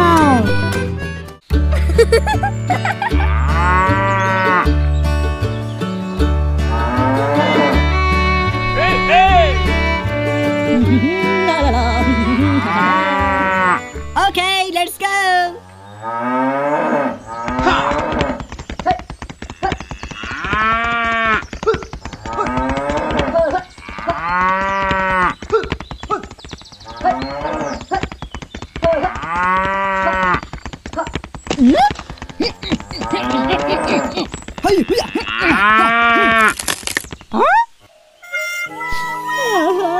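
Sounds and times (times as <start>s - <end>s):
music: 0.0s - 14.4s, 38.2s - 39.9s
cows mooing: 3.2s - 4.7s, 6.7s - 14.0s, 15.5s - 18.4s, 19.5s - 21.4s, 22.2s - 25.4s, 26.8s - 27.8s, 29.0s - 30.4s, 32.4s - 36.5s
scratchy crackle: 17.5s - 37.4s.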